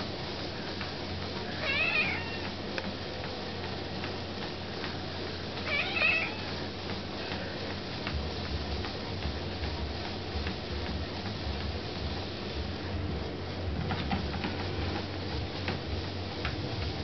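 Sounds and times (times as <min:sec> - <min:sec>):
steady low hum: 0:00.0 - 0:17.0
cat meowing: 0:01.6 - 0:02.5, 0:05.7 - 0:06.4.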